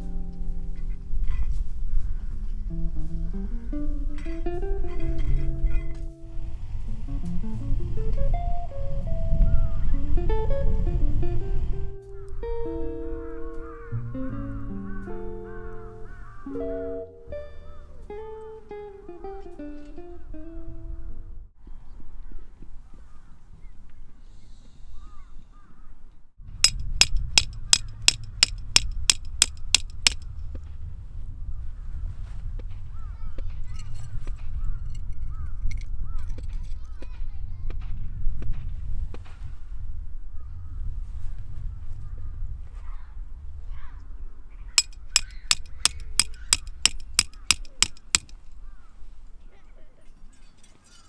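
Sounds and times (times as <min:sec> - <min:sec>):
wind rumble on microphone: 0:00.0 - 0:12.5, 0:30.3 - 0:44.6
hammer striking metal stake: 0:26.6 - 0:30.2, 0:44.8 - 0:48.4.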